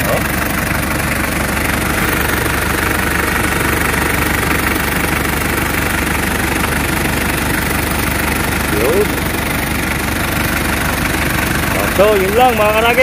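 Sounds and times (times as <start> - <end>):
van engine idling: 0.0 - 13.0.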